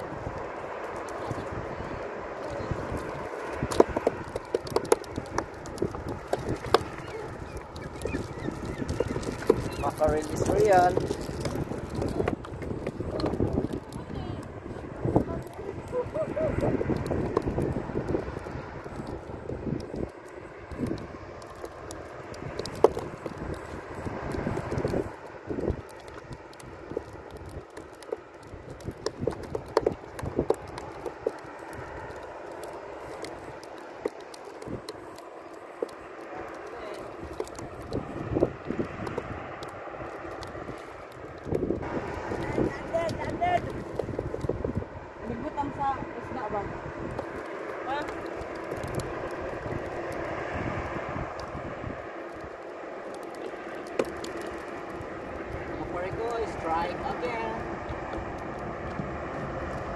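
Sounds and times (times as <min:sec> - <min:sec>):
engine drone: 0:00.0 - 0:59.9
steady outdoor hiss: 0:00.0 - 0:59.9.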